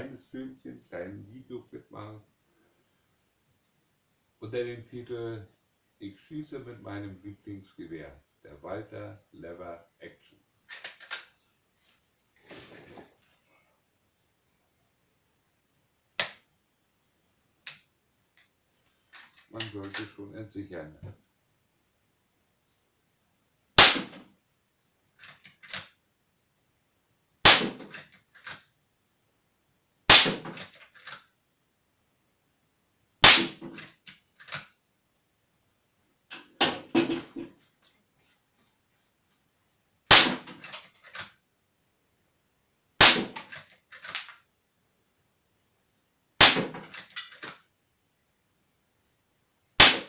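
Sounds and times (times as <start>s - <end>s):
air rifle shots: 23.8s - 24.2s, 27.4s - 28.0s, 30.1s - 30.7s, 33.2s - 33.8s, 40.1s - 40.7s, 43.0s - 44.2s, 46.4s - 47.0s, 49.8s - 50.0s.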